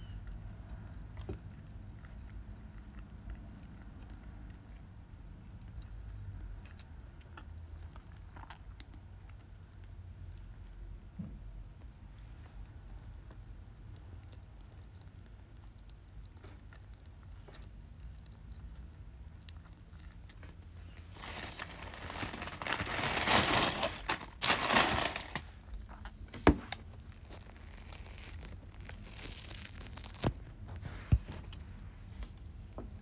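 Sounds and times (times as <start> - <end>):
spring roll wrapper crinkling: 20.5 - 30.7.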